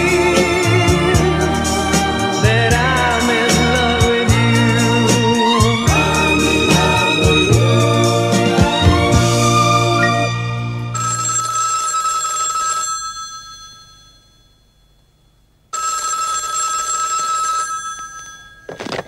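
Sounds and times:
telephone bell ringing: 11.0s - 15.0s, 15.7s - 19.0s.

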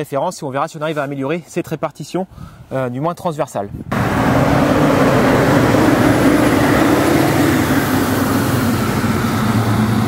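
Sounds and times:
tractor diesel engine droning: 3.9s - 10.0s.

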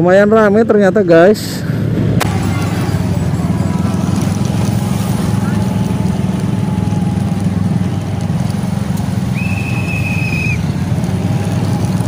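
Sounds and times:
motorcycle engine running: 2.2s - 12.0s
high whistle: 9.3s - 10.6s.

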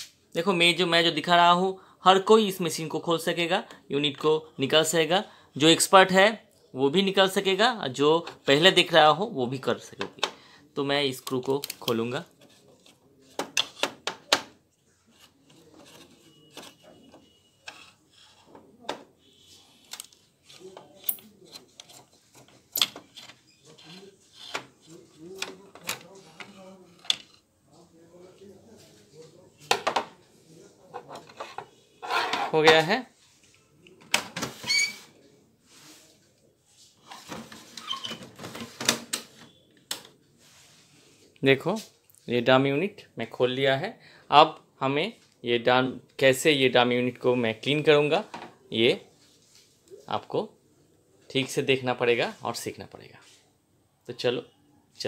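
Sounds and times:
metal scraping on plastic: 15.0s - 27.5s, 30.9s - 32.9s.

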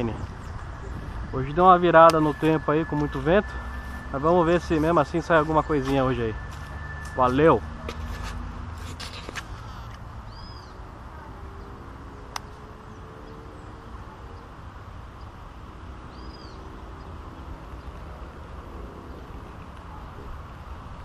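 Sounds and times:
wind buffeting microphone: 0.0s - 6.9s
bird chirping: 9.5s - 10.9s, 16.0s - 18.2s.

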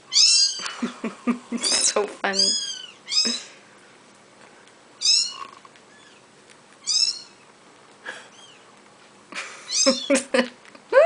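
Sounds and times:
kitten mewing: 0.1s - 0.8s, 1.5s - 3.6s, 5.0s - 6.2s, 6.8s - 7.4s, 9.7s - 10.2s.

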